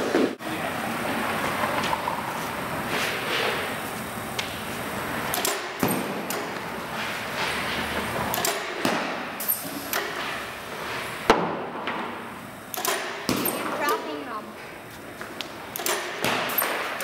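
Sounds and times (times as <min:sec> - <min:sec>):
puck striking pads: 0:00.0 - 0:00.4, 0:08.4 - 0:09.3.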